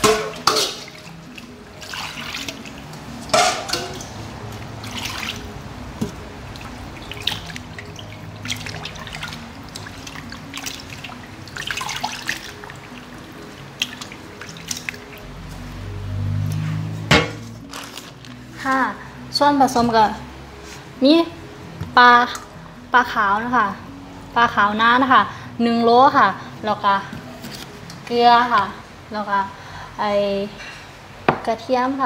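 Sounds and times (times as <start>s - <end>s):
water splashes and drips: 0.0s - 18.9s
background music: 0.0s - 32.0s
hands rubbing fish in water: 4.0s - 15.2s, 16.7s - 18.3s.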